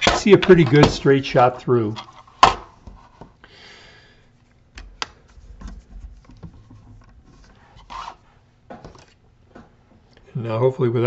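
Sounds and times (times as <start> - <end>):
plastic rubbing: 4.4 - 9.2.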